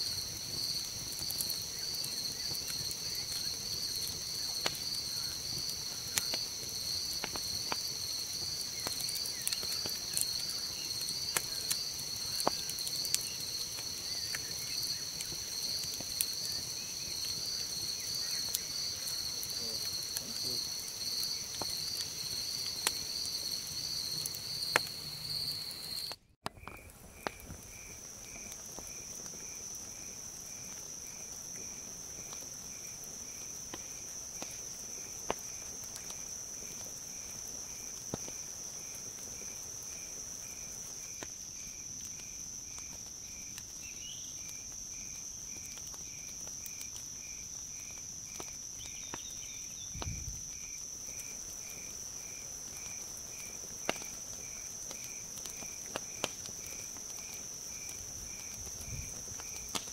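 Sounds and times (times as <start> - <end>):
campfire popping and crackling: 0.0 - 59.9
cricket chirping: 0.0 - 59.9
insect high trill: 10.0 - 26.2.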